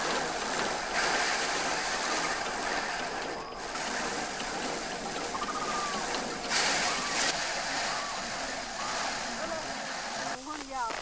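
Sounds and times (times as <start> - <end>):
rice stalks rustling in thresher: 0.0 - 11.0.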